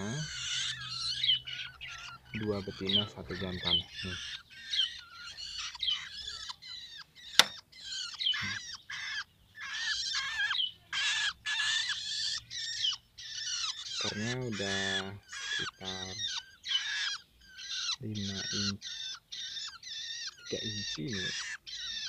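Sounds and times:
birds giving harsh raspy calls: 0:00.0 - 0:22.0
sharp click: 0:07.4 - 0:07.6.

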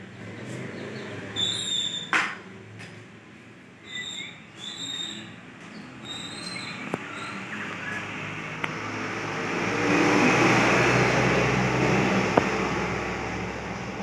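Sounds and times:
vehicle passing by: 0:00.0 - 0:01.6, 0:06.6 - 0:14.0.

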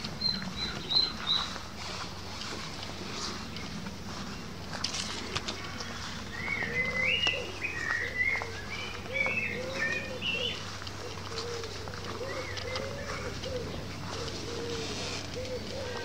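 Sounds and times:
songbird chirping: 0:00.0 - 0:16.0
pigeon cooing: 0:05.0 - 0:16.0.

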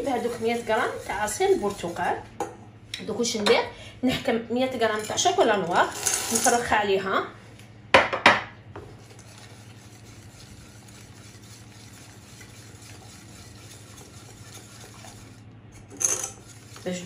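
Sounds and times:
whisk scraping in pan: 0:00.0 - 0:02.4, 0:08.9 - 0:17.0.

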